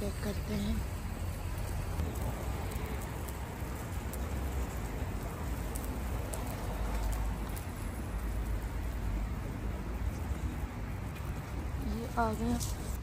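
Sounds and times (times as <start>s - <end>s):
hiss: 0.0s - 7.4s
low fluctuating rumble: 0.0s - 13.0s.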